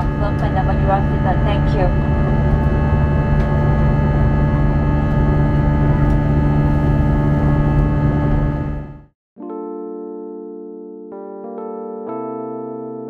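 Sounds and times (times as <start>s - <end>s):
aircraft engine drone: 0.0s - 9.1s
steady hum tones: 0.0s - 9.1s.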